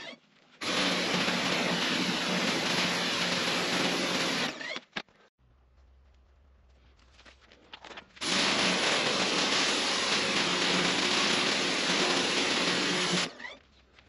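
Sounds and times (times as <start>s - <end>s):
pressure washer spraying: 0.6s - 4.5s, 8.2s - 13.3s.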